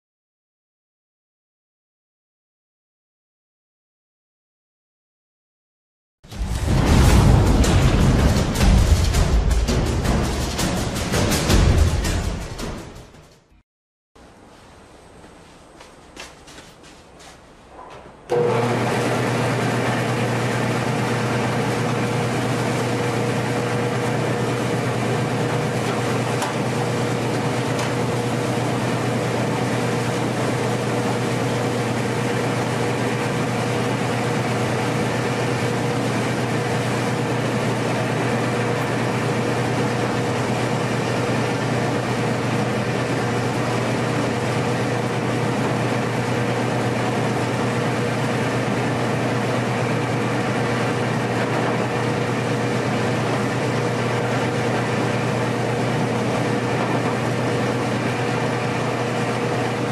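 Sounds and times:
machine whine: 6.3 - 13.1, 18.2 - 59.9
rice mill machinery droning: 17.8 - 59.9.

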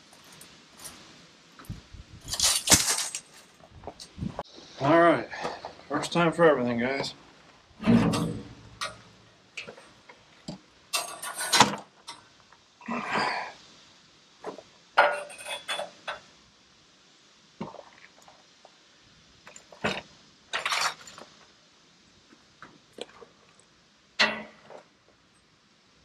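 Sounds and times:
steel band clinking and rattling: 0.1 - 4.2, 10.9 - 12.3, 15.0 - 16.3, 20.5 - 21.4.

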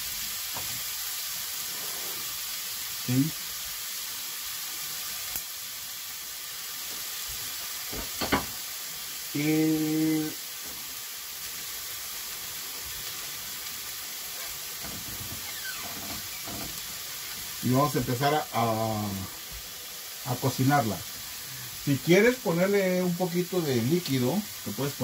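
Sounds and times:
steak sizzling in a frying pan: 0.0 - 25.0
knock: 7.9 - 8.5.

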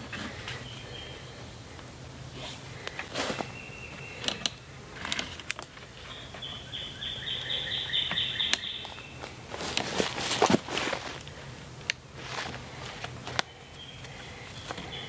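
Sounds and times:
faint steady hum: 0.0 - 15.0
songbird singing: 0.0 - 15.0
logs knocking and rustling: 9.2 - 13.5.

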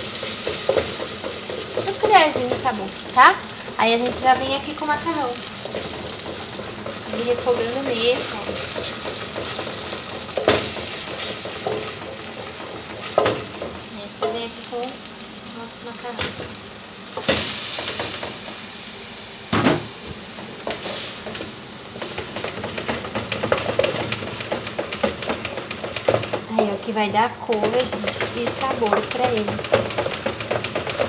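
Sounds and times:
sauce sizzling in a pot: 0.0 - 31.0
wooden spoon knocking pot: 22.2 - 31.0.

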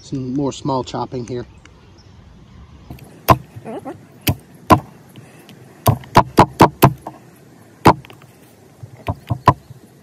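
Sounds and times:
hatchet chopping sticks on log: 2.9 - 3.6, 4.2 - 7.2, 7.8 - 8.3, 8.9 - 9.7.

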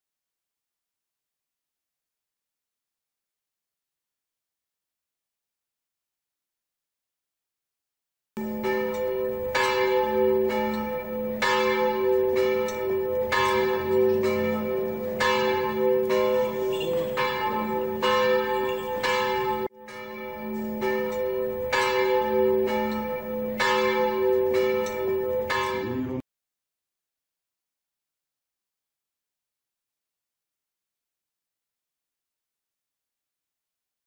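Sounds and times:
church bells ringing: 8.4 - 26.2.

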